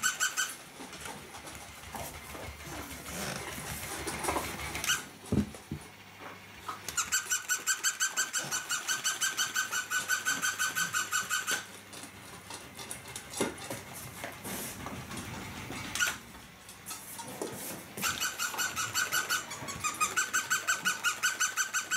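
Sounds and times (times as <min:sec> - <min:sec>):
toy dog electronic yips: 0:00.0 - 0:00.6, 0:04.8 - 0:05.1, 0:06.9 - 0:11.7, 0:16.0 - 0:16.2, 0:18.0 - 0:21.9.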